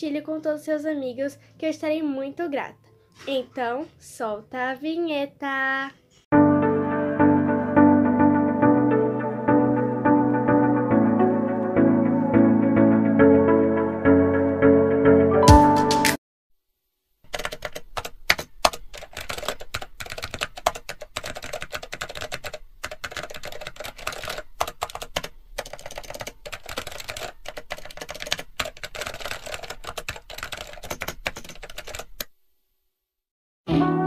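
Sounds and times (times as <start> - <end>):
keyboard typing: 17.3 - 32.3.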